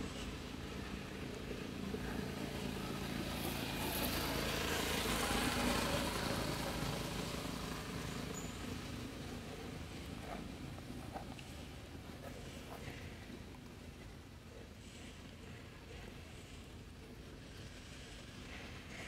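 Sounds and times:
passing vehicle engine hum: 0.0s - 13.9s.

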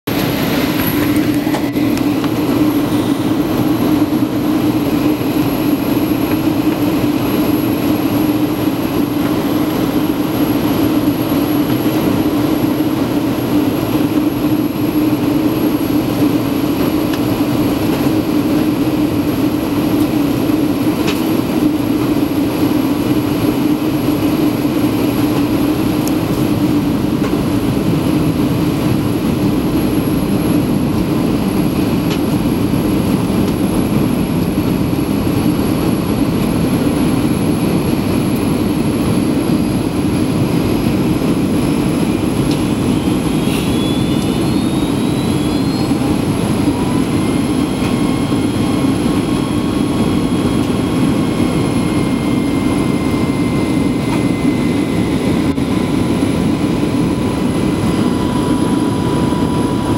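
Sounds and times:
jet engine drone: 0.1s - 59.9s.

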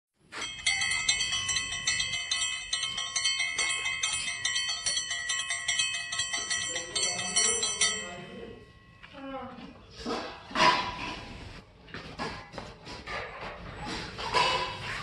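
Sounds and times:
bell-like chimes music: 0.3s - 9.2s.

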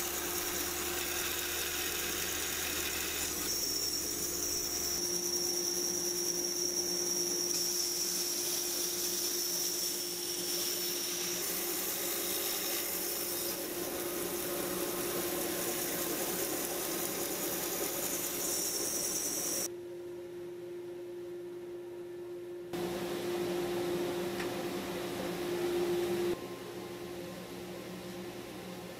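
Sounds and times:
bandsaw blade cutting wood: 0.0s - 5.0s, 7.4s - 19.7s
bandsaw motor hum: 0.0s - 19.7s.

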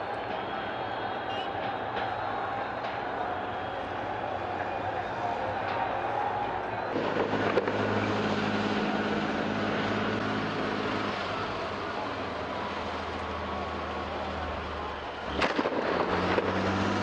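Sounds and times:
tank engine droning: 0.0s - 17.0s
sharp crack: 6.9s - 11.2s, 15.0s - 17.0s.

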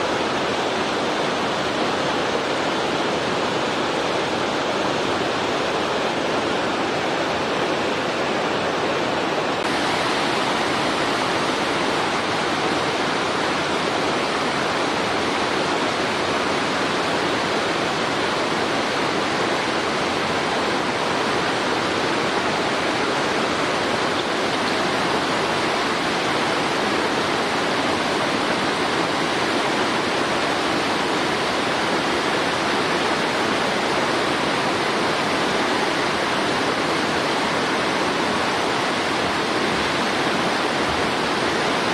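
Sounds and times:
steady rushing noise: 0.0s - 41.9s.

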